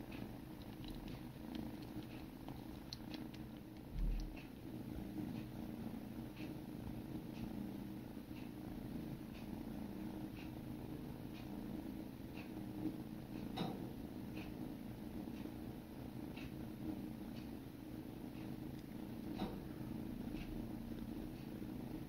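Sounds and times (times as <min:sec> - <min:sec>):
kittens purring: 0:00.0 - 0:22.0
soft licking: 0:00.1 - 0:04.6.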